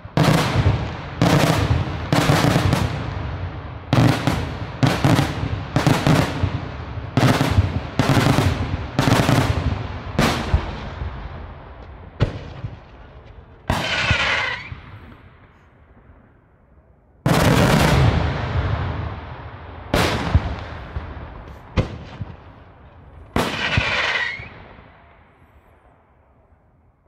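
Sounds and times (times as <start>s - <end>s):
firework shells bursting: 13.4s - 15.2s, 23.2s - 24.6s.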